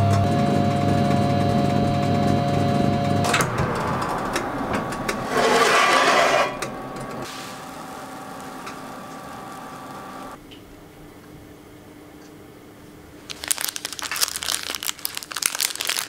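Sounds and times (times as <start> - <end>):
faint whining tones: 0.0 - 10.4
oven humming: 0.0 - 11.2
loud burst of noise: 0.2 - 10.4.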